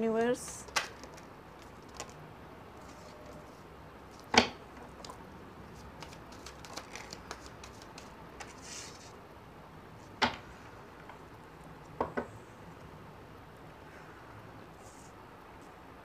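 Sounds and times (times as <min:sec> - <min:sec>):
cards clicking and rustling: 0:00.5 - 0:02.2, 0:05.8 - 0:09.2.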